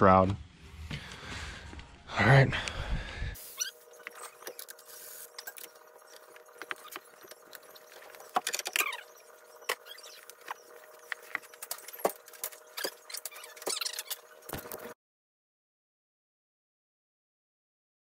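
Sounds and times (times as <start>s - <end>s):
rubber squeak: 3.5s - 4.6s, 5.3s - 14.3s.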